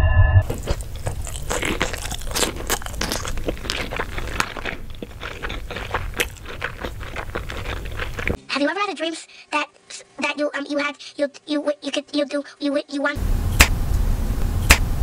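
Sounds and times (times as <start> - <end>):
crunchy food chewing: 0.4 - 8.4.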